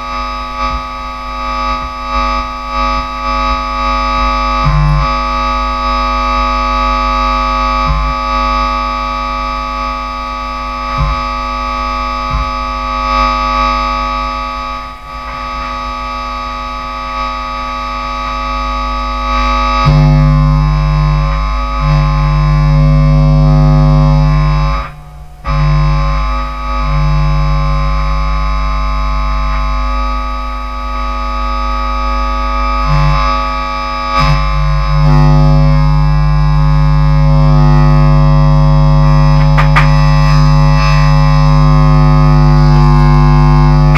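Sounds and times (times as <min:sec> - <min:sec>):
distorted bass guitar: 0:00.0 - 0:43.9
loud low bass note: 0:19.4 - 0:43.9.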